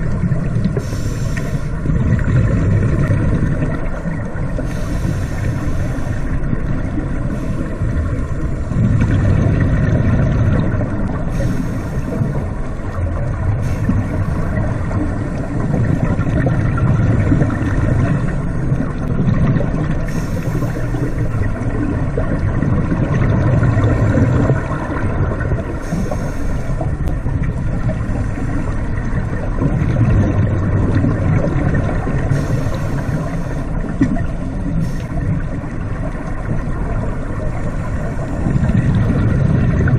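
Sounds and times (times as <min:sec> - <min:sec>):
muffled underwater rumble: 0:00.0 - 0:39.9
regulator breathing bubbles: 0:00.0 - 0:39.9
regulator hiss: 0:00.8 - 0:01.8, 0:04.6 - 0:06.4, 0:11.3 - 0:12.4, 0:20.0 - 0:21.5, 0:25.8 - 0:26.9, 0:32.3 - 0:33.8.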